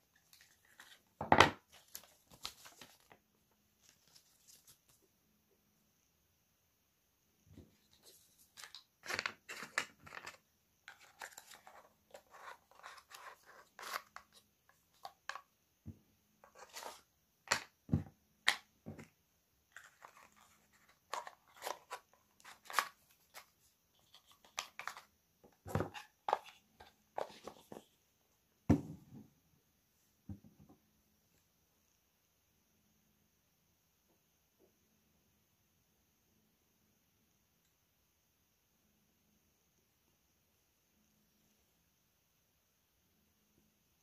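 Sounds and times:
packaging crinkling and tearing: 1.7s - 3.2s.

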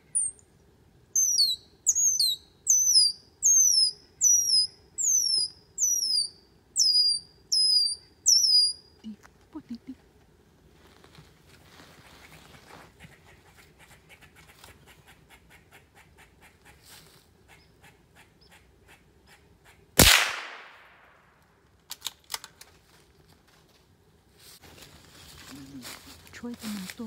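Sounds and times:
gunshot: 20.0s - 21.2s.

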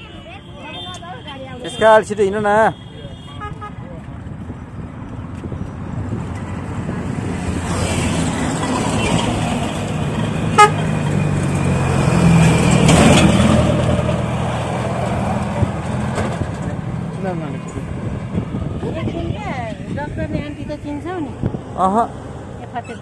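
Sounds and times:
truck driving past: 5.7s - 23.0s
short horn beep: 10.6s - 10.8s.

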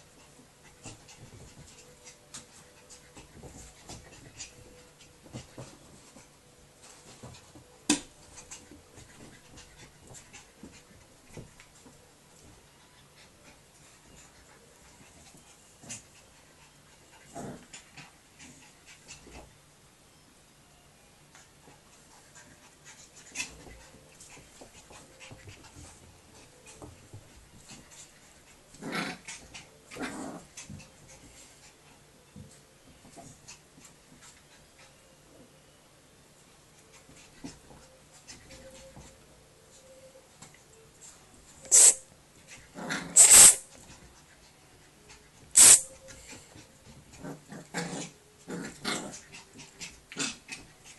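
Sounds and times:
paws scuffling on rug: 0.2s - 16.2s
dog noise bursts: 41.7s - 42.0s, 43.2s - 43.6s, 45.6s - 45.9s.

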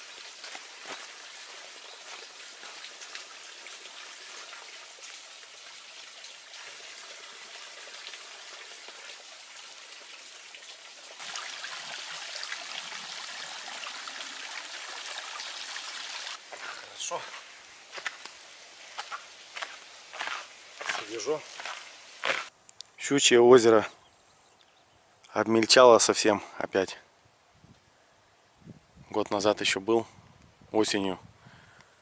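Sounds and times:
stream water trickling: 0.0s - 22.5s.

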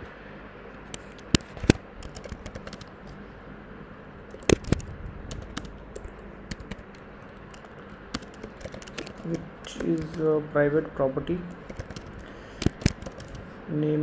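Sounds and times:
computer keyboard typing: 0.9s - 3.2s, 4.3s - 10.4s, 11.5s - 13.5s.

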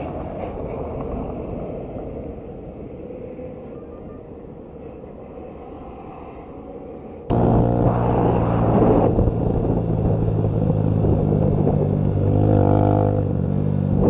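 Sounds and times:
car driving on gravel: 7.3s - 14.0s.

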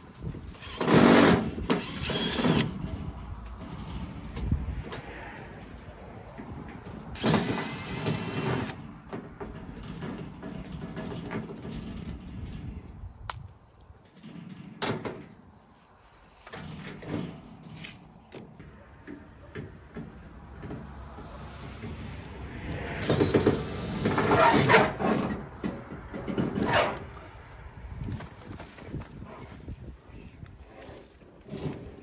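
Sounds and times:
metal clanks and knocks: 6.3s - 12.9s, 16.5s - 22.1s, 23.0s - 27.0s.

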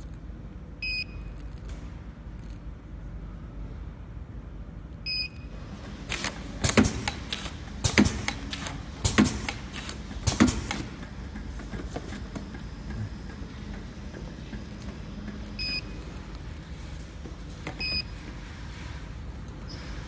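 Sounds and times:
control panel beep: 5.1s - 5.5s, 15.6s - 16.0s
sharp clacks of boxes on conveyor: 6.0s - 13.1s.

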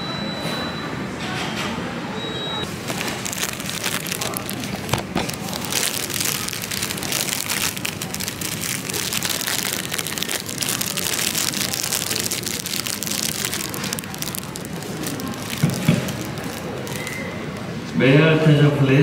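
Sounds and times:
plastic wrapper crinkling: 2.7s - 17.8s.

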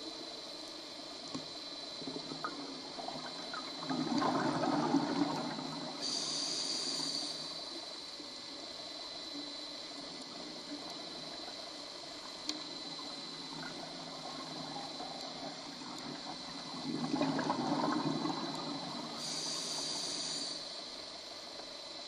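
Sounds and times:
steady faint hiss: 0.0s - 22.0s
gurgle of exhaled bubbles: 1.8s - 7.7s, 12.6s - 20.6s
high hiss of inhaled breath: 6.0s - 7.6s, 19.2s - 20.8s.

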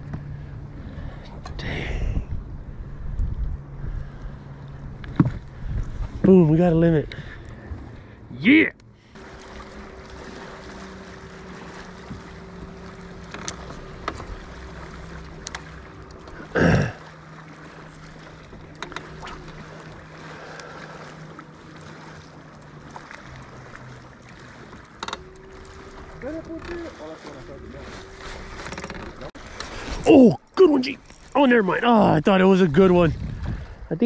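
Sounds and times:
boat motor humming: 0.0s - 34.0s
water noise: 0.0s - 34.0s
light clicks: 15.3s - 16.3s.

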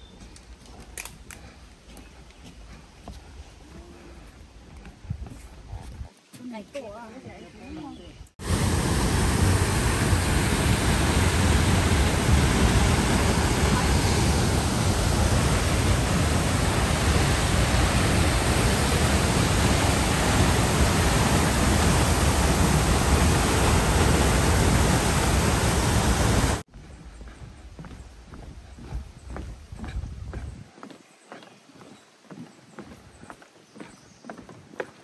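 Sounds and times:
loud steady rushing noise: 8.4s - 26.7s.

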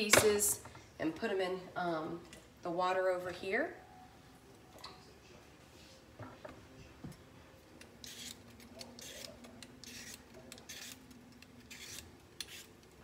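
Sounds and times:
vegetable peeler scraping potato: 8.0s - 12.9s.

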